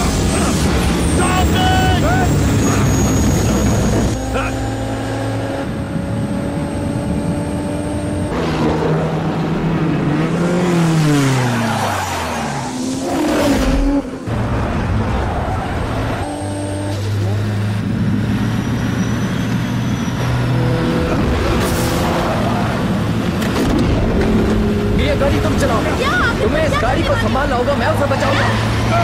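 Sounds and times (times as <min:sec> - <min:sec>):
tyres skidding: 0:00.0 - 0:07.3, 0:08.1 - 0:29.0
sports car engines racing: 0:00.0 - 0:29.0.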